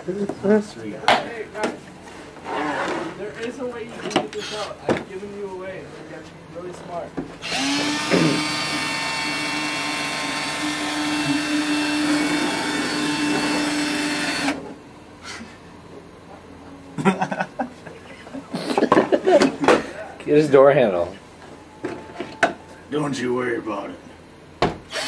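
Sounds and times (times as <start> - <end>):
cordless drill motor running: 7.4 - 14.6.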